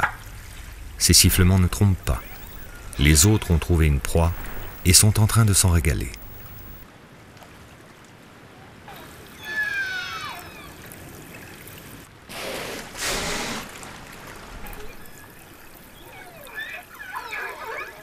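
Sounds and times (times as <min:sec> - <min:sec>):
orca blowing as it exhales: 0:12.3 - 0:13.9
orcas whistling and calling: 0:14.6 - 0:18.0.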